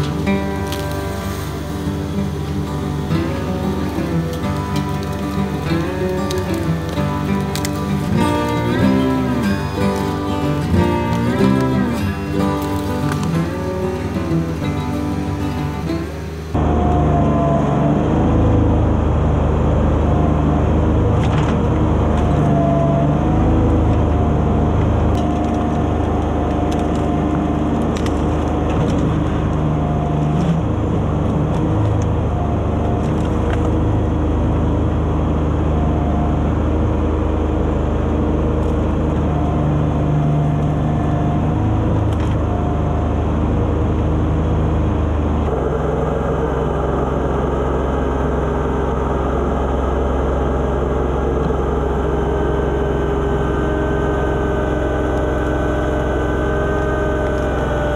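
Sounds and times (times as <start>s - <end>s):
wood and branches cracking: 0.0s - 16.5s, 23.6s - 34.6s
hydraulic whine: 0.0s - 57.9s
tractor diesel engine running: 0.0s - 57.9s.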